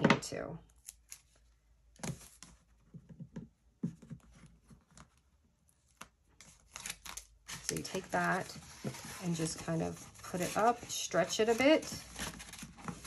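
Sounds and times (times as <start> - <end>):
paper rustling: 3.9 - 13.0.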